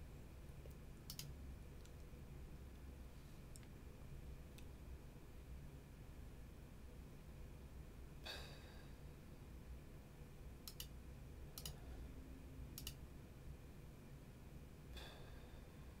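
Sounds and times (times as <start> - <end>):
faint room hum: 0.0 - 16.0
computer mouse clicking: 0.6 - 2.1, 10.6 - 11.8, 12.7 - 13.0
short exhale: 8.2 - 8.9, 14.9 - 15.9.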